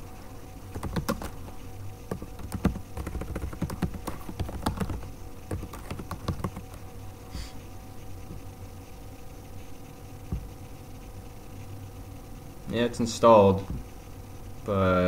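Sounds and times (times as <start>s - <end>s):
faint steady hum: 0.0s - 15.0s
computer keyboard typing: 0.7s - 1.5s, 2.1s - 6.8s.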